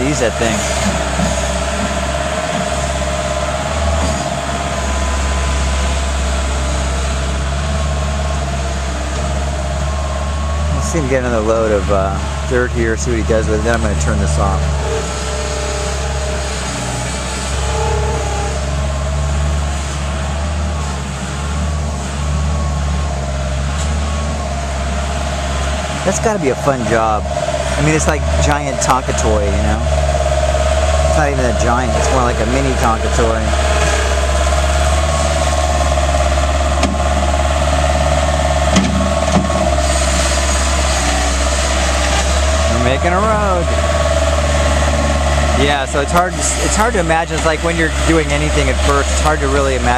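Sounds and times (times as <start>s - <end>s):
loader engine running: 0.0s - 49.9s
high whine: 9.1s - 21.0s.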